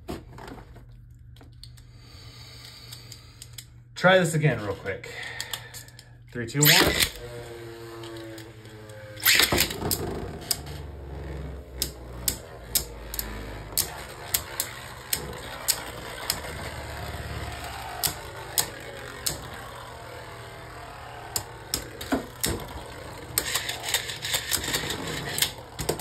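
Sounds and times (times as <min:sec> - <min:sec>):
spinning tops whirring: 0:04.4 - 0:26.0
spinning tops clicking together: 0:05.3 - 0:26.0.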